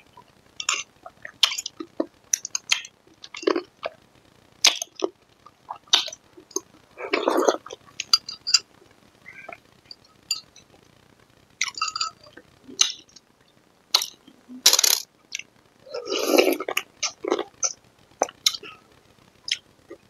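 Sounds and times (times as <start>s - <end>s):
eating sounds: 4.6s - 8.7s, 15.3s - 18.8s.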